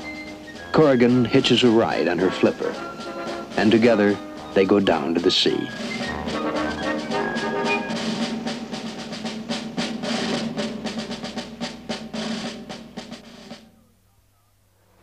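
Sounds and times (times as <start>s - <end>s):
held pitched notes: 0.0s - 11.4s
drum pattern: 0.0s - 13.8s.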